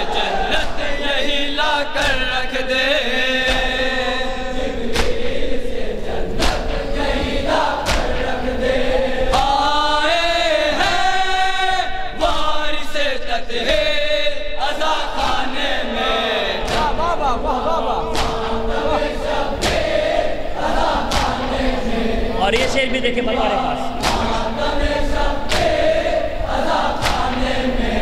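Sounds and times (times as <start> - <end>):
men chanting into a microphone: 0.0 - 28.0
hands slapping chests: 4.9 - 5.3, 6.4 - 6.8, 7.8 - 8.2, 9.3 - 9.6, 16.6 - 17.1, 18.1 - 20.0, 21.0 - 21.5, 24.0 - 24.4, 25.4 - 25.8, 27.0 - 27.5.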